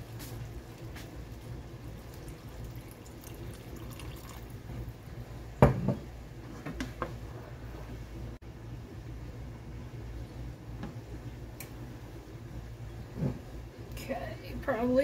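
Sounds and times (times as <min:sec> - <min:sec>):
water trickling into a pan: 0:00.4 - 0:05.0.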